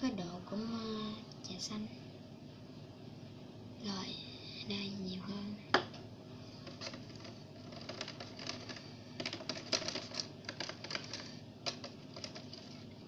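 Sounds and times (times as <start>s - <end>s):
plastic clicking and tapping: 6.7s - 12.8s.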